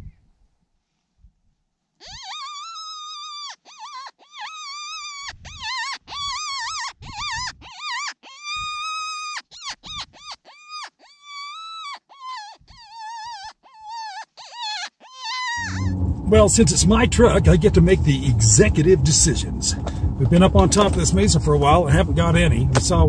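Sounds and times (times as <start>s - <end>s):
predator call wailing: 15.5s - 22.1s.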